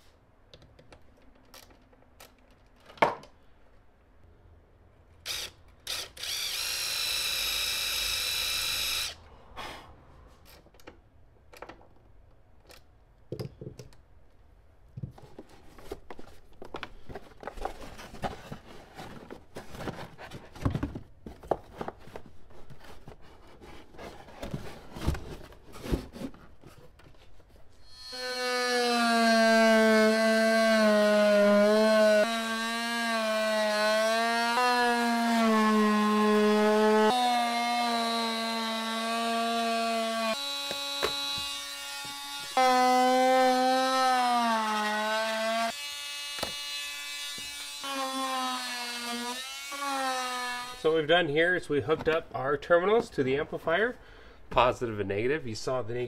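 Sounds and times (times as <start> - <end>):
power drill high whine: 5.3 - 9.2, 27.9 - 29.0.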